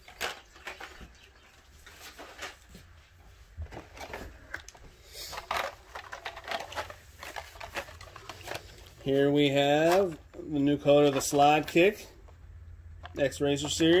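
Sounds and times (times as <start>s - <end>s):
plastic packaging rustling and clicking: 0.0s - 3.0s, 3.6s - 12.4s, 13.0s - 14.0s.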